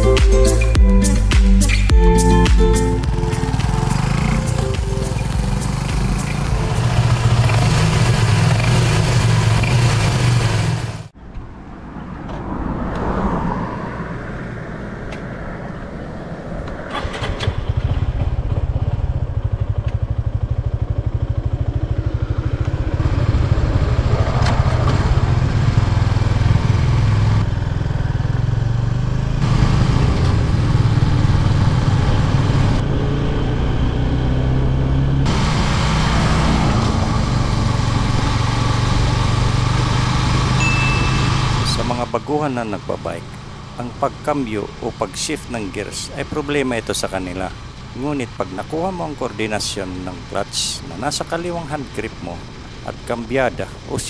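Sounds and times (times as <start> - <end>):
small motorcycle engine revving: 3.0 - 11.1, 16.8 - 44.7.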